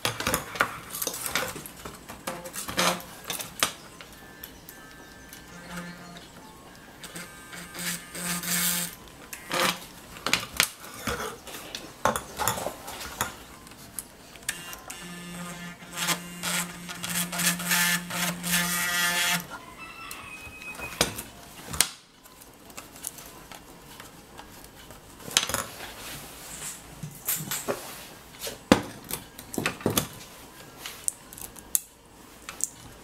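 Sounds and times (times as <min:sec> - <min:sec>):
soldering gun buzzing: 0:06.9 - 0:09.8, 0:14.5 - 0:19.5.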